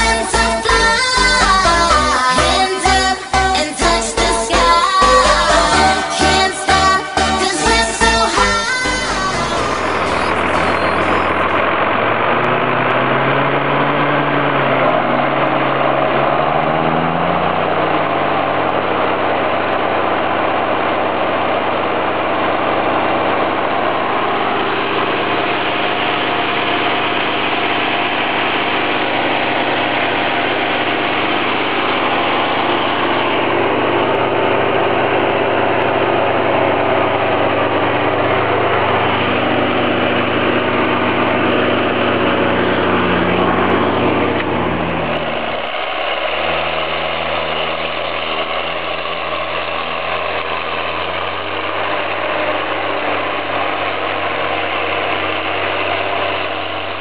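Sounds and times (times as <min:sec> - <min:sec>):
diesel tractor engine running: 0:00.0 - 0:57.0.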